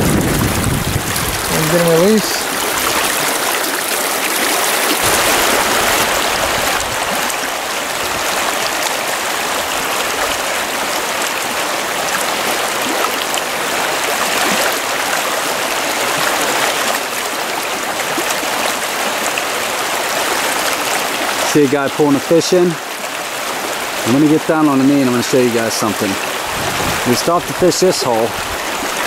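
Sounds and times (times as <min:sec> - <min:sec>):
river water flowing over rocks: 0:00.0 - 0:29.0.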